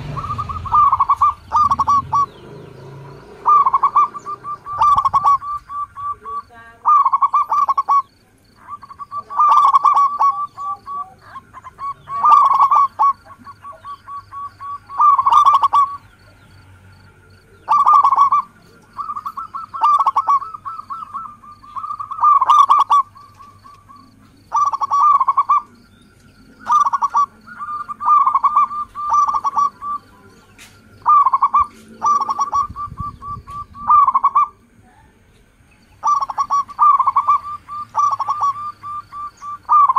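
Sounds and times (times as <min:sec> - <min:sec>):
dove cooing: 0:00.0 - 0:35.2, 0:36.0 - 0:39.9.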